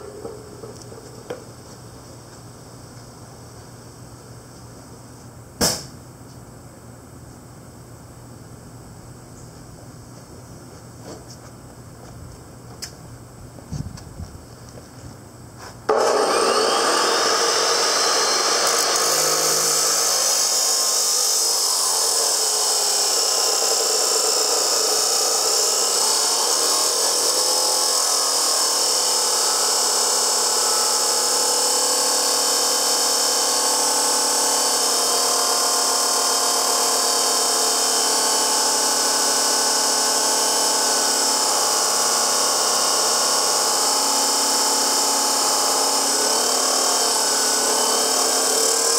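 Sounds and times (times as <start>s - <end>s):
chop saw grinding steel: 15.9s - 48.9s.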